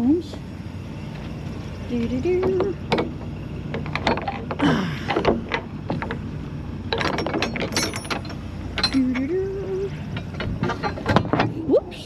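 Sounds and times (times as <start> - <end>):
low steady hum: 0.0 - 12.0
metal clanks and clicks: 2.0 - 6.3, 6.9 - 11.7.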